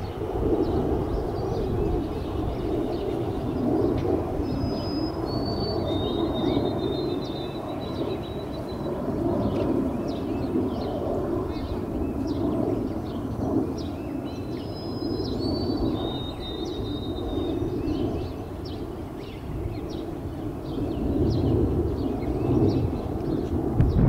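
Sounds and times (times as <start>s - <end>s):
bird chirps: 4.4s - 8.9s, 13.1s - 20.0s.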